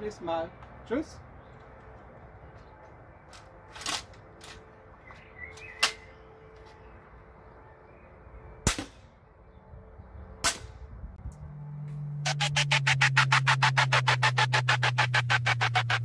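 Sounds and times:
crossbow string shots: 8.7 - 9.1, 10.4 - 10.8.

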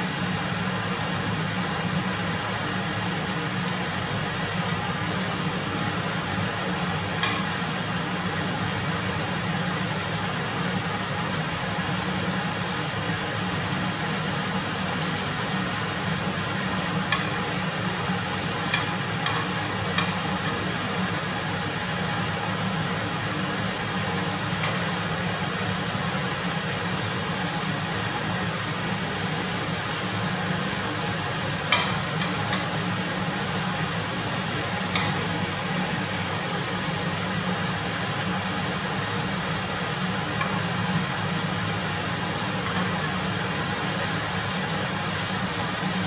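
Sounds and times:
steady low hum: 0.0 - 46.0
scallops sizzling in frying pan: 13.4 - 46.0
chopsticks clicking against pan: 34.9 - 35.2.

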